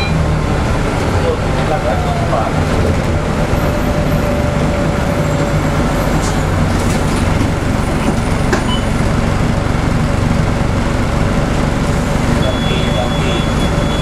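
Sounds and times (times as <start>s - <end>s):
diesel bus engine running: 0.0s - 14.0s
road noise: 0.0s - 14.0s.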